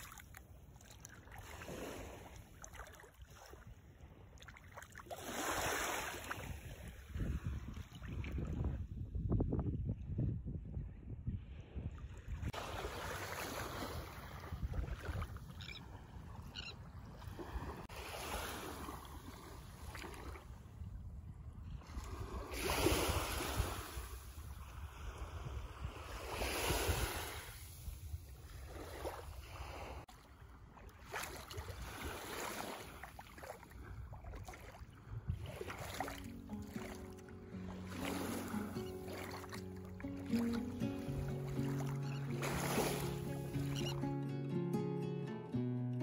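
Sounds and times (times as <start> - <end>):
small waves lapping on sand: 0.0 - 8.8, 11.5 - 44.0
wind rumble on microphone: 6.3 - 12.7, 13.9 - 17.9, 19.1 - 30.7, 33.6 - 36.0.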